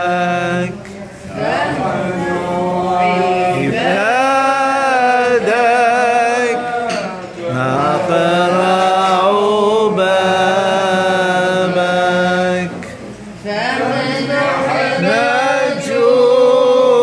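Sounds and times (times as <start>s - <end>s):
man chanting a hymn: 0.0s - 13.0s.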